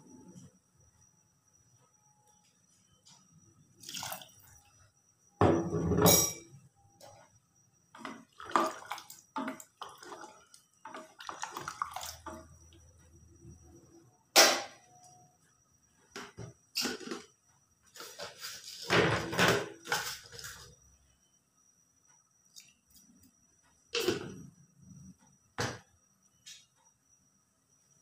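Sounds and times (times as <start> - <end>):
soup sloshing: 8.0 - 12.6.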